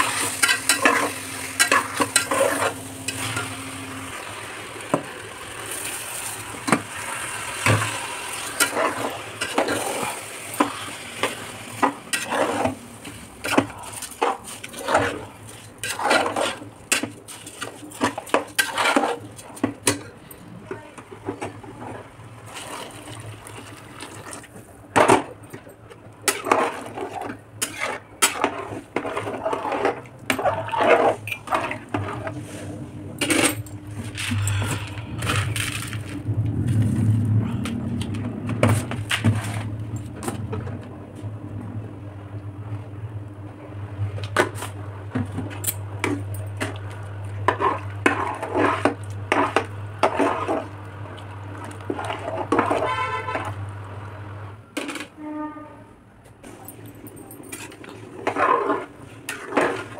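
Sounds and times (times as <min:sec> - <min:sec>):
ladle scraping metal pot: 0:00.0 - 0:03.6, 0:06.7 - 0:20.0, 0:26.2 - 0:36.2, 0:44.3 - 0:53.6, 0:57.4 - 0:59.9.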